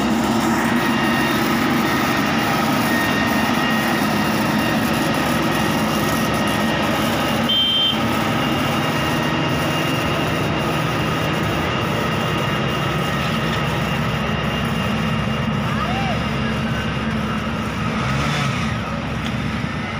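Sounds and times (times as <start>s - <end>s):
diesel engine running: 0.0s - 19.9s
high beep: 7.5s - 8.0s.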